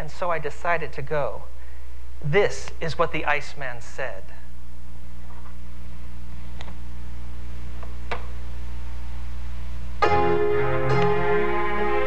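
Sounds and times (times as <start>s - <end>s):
low electrical hum: 0.0s - 12.0s
electronic musical chord: 10.0s - 12.0s.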